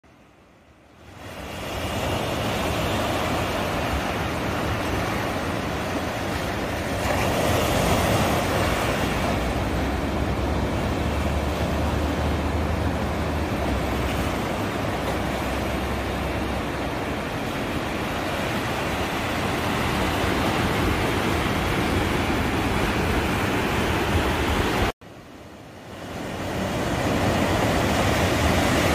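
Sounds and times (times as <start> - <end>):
ocean surf breaking: 0.1 - 28.9.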